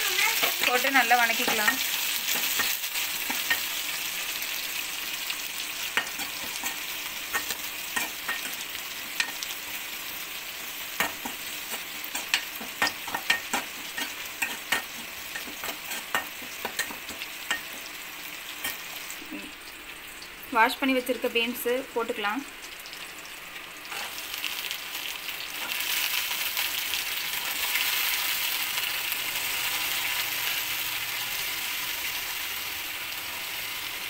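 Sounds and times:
food sizzling in oil: 0.0 - 34.0.

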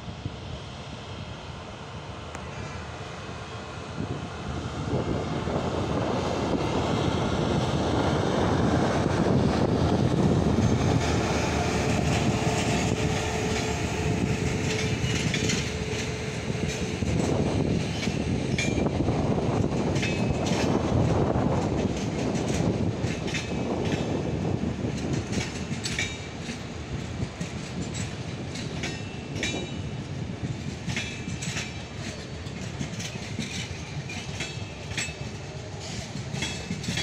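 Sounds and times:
passenger train passing: 0.0 - 37.0
train whine: 0.0 - 37.0
wheels clicking over rail joints: 7.5 - 37.0.

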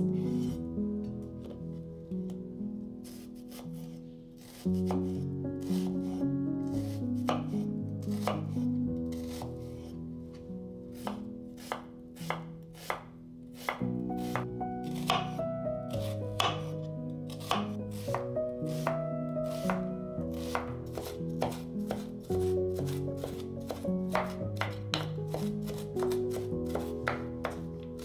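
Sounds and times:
knife chopping on cutting board: 7.2 - 8.5, 9.2 - 9.5, 11.0 - 13.0, 13.6 - 16.7, 17.3 - 19.8, 20.4 - 22.2, 22.8 - 28.0.

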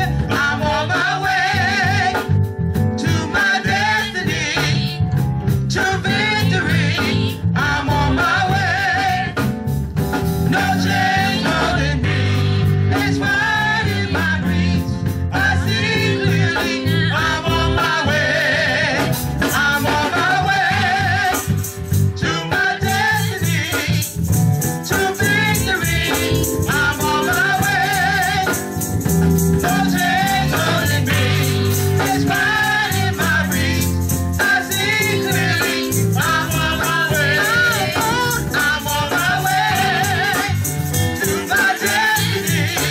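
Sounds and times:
bass notes: 0.0 - 42.9
gospel singers singing: 0.0 - 42.9
rattling percussion beat: 19.0 - 42.9.

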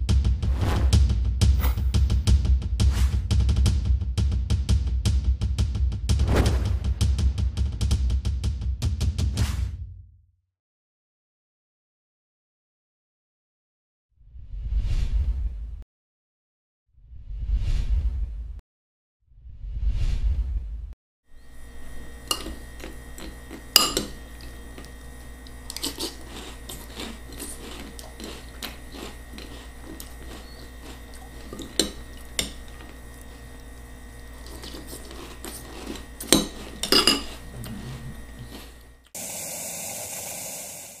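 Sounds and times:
steady low hum: 21.3 - 39.4
spoon clinking on ceramic bowl: 22.3 - 22.6, 23.8 - 24.2, 36.4 - 37.3.

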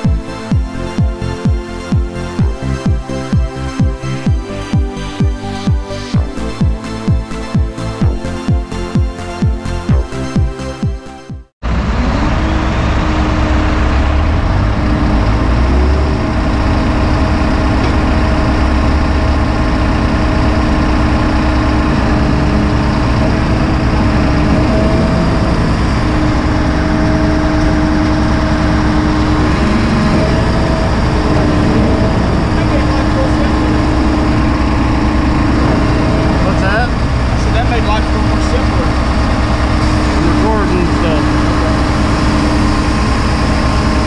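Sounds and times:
diesel engine idling: 11.6 - 44.0.

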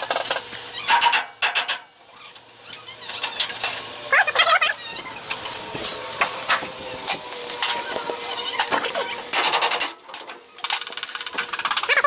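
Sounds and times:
rapid ratchet clicking: 10.6 - 12.0.

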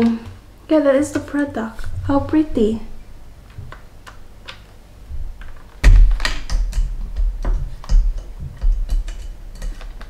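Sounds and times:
heavy close bumps: 5.1 - 9.5
plastic device handling clicks and knocks: 5.4 - 10.0.

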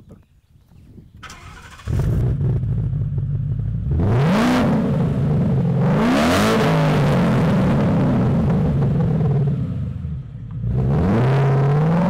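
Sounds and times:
car engine starting and idling: 1.2 - 6.0
car engine revving: 1.3 - 12.0.

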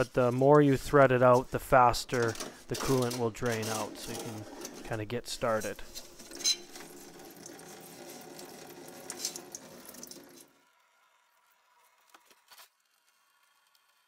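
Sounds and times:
coolant pouring into a pan: 5.8 - 11.7.

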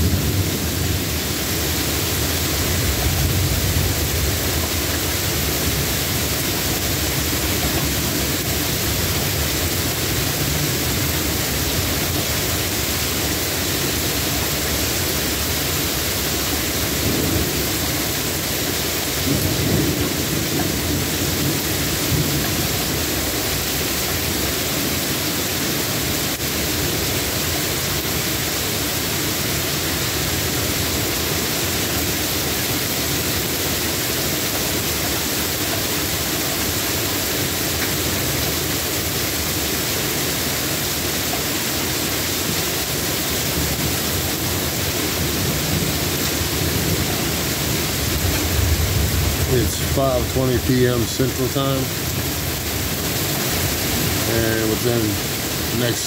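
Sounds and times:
steady rain falling: 0.0 - 56.0
thunder rumbling: 16.8 - 23.3, 45.1 - 56.0.

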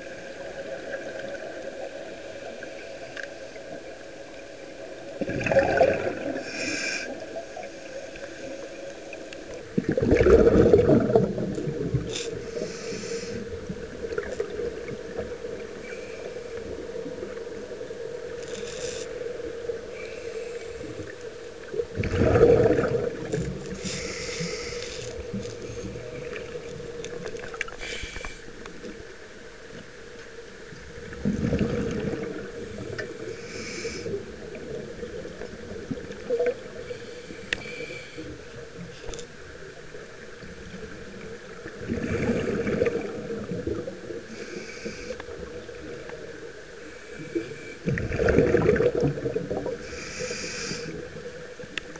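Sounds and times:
exhaled bubbles rushing: 5.2 - 6.4, 9.6 - 12.1, 21.8 - 24.0, 31.0 - 33.2, 41.4 - 44.2, 47.8 - 49.8
steady hum: 6.2 - 41.9
regulator hissing inhalations: 6.4 - 7.2, 12.1 - 13.5, 23.8 - 26.0, 27.7 - 28.5, 33.3 - 34.2, 36.9 - 38.3, 44.3 - 45.2, 49.8 - 51.0.

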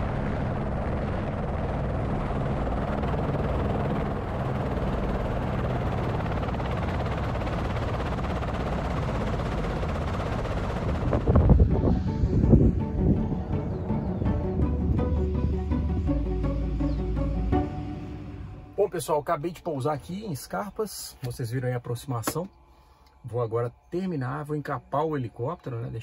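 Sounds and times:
helicopter in flight: 0.0 - 18.8.

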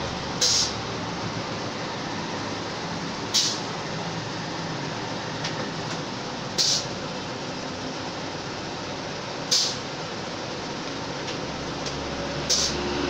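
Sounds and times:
short sharp hiss: 0.4 - 0.8, 3.3 - 3.7, 6.6 - 6.9, 9.5 - 9.8, 12.5 - 12.8.

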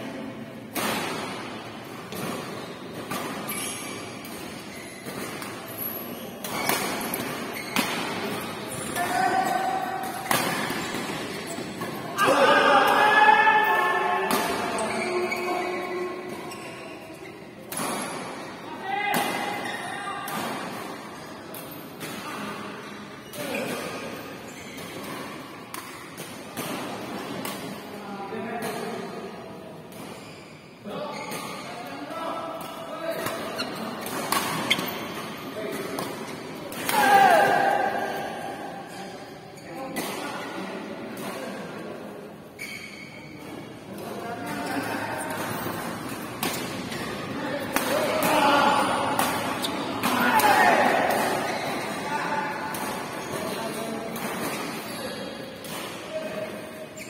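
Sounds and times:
racket hitting shuttlecock: 6.4 - 9.2, 10.0 - 12.0, 45.4 - 51.9
voices and shouts: 12.0 - 16.1, 36.8 - 38.5.

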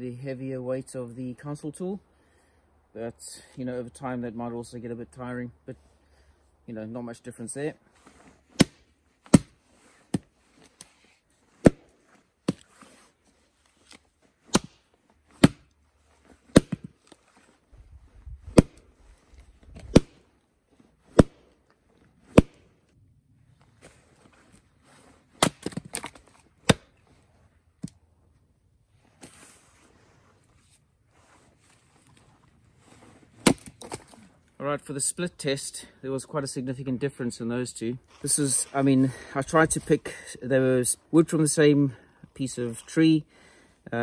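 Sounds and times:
axe chopping wood: 8.5 - 10.3, 11.6 - 12.7, 14.4 - 15.7, 16.5 - 16.9, 18.5 - 18.8, 19.8 - 20.2, 21.1 - 21.5, 22.3 - 22.7, 25.4 - 26.9, 33.4 - 34.2.

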